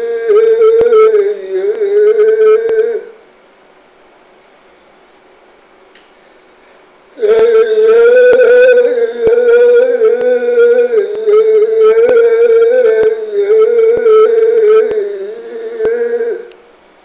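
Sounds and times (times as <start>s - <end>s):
man singing long note: 0.0s - 3.2s, 7.2s - 16.6s.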